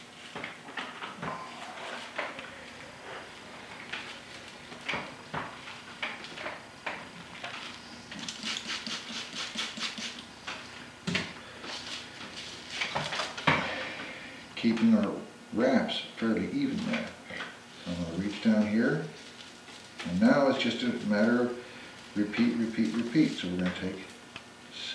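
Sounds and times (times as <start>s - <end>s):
dry straws rustling and clicking: 22.2s - 24.5s.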